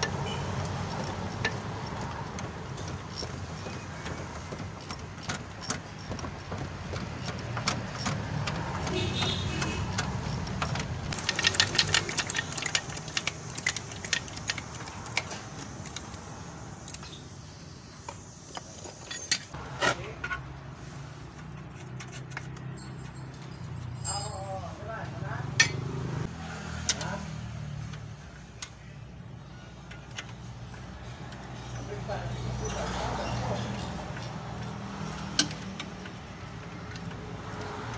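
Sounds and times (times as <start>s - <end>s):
rapid ratchet clicks: 0.0s - 8.9s, 9.8s - 16.2s
hand tools clinking on metal: 9.9s - 16.1s, 21.6s - 25.0s.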